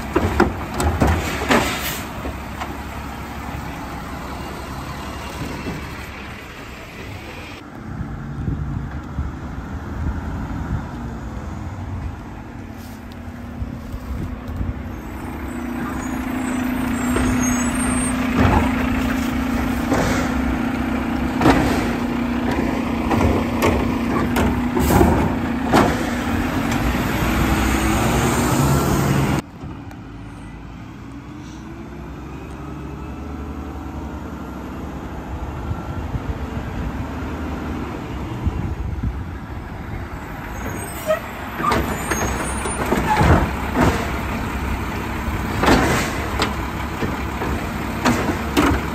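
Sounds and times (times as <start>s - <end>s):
knocks and rattles from truck body: 0.0s - 2.7s, 21.2s - 26.8s, 41.6s - 44.3s, 45.4s - 48.9s
garbage truck diesel engine: 0.0s - 48.9s.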